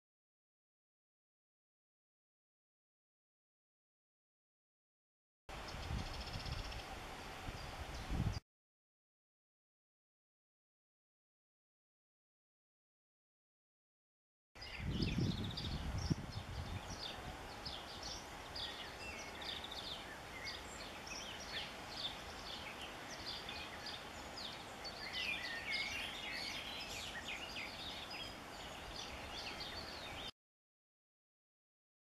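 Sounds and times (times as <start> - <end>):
songbirds chirping and trilling: 5.5 - 8.4, 14.6 - 30.3.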